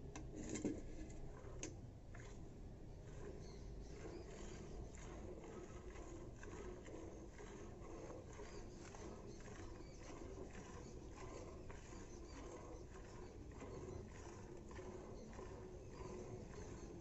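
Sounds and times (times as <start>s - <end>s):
milk squirting into steel bucket: 4.0s - 16.6s.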